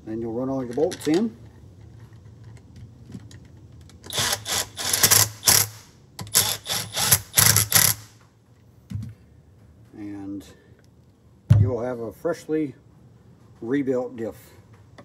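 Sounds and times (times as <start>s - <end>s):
cordless power driver bursts: 4.1s - 8.2s.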